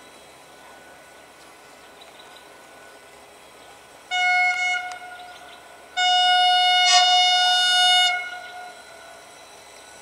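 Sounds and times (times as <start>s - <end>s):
locomotive horn blast: 4.1s - 5.3s, 6.0s - 9.1s.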